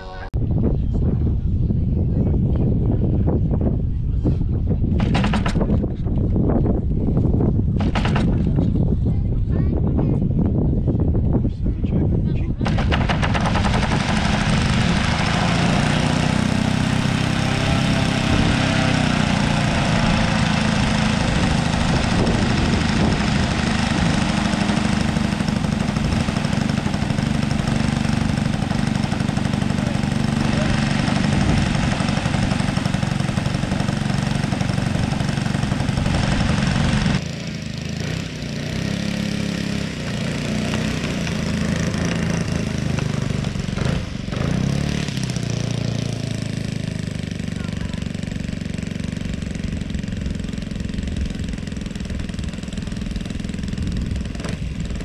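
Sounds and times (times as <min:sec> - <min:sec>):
model airplane engine running: 0:12.6 - 0:55.0.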